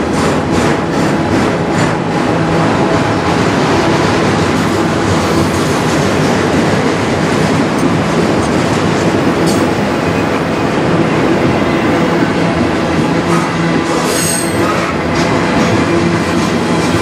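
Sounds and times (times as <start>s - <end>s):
freight train wheels on rails: 0.0s - 17.0s.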